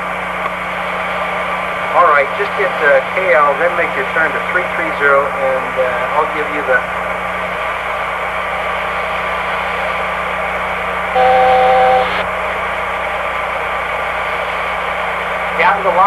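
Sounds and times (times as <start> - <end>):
steady hiss with low hum: 11.1 - 12.3
two-pitched warning tone: 11.2 - 12.2.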